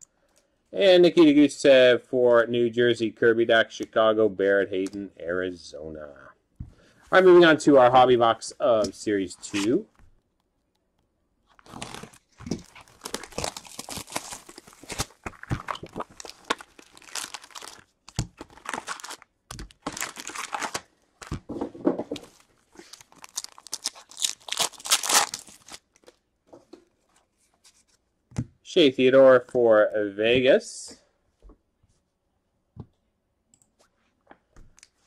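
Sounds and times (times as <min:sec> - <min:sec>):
card pack wrappers crinkling: 0:11.5 - 0:21.4, 0:22.2 - 0:26.2.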